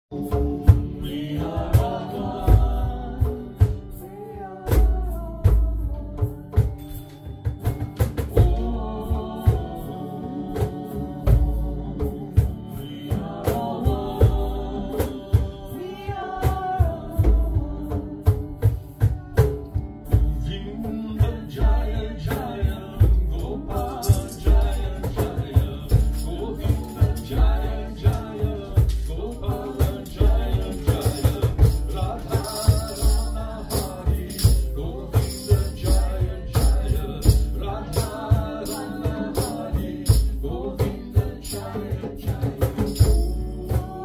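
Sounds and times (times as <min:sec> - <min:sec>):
person singing: 0:00.1 - 0:07.6, 0:08.3 - 0:44.0
strummed acoustic guitar: 0:00.1 - 0:44.0
cajon slapped: 0:07.4 - 0:08.6.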